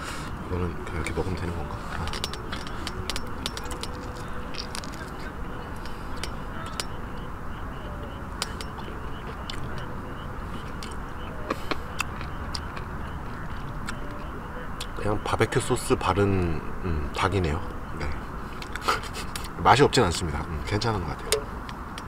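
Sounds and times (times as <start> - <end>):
outdoor background hum: 0.0 - 22.0
person chewing: 10.5 - 14.0.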